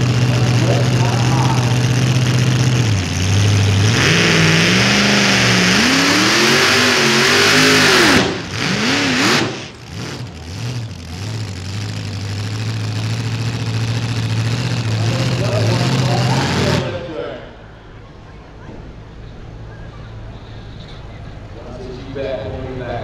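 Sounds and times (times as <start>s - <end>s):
supercharged truck engine revving: 0.0s - 17.2s.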